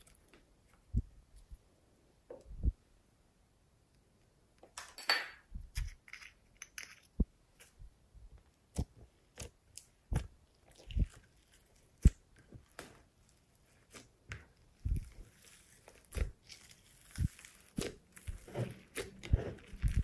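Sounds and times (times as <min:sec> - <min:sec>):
slime squishing: 0:08.6 - 0:20.0.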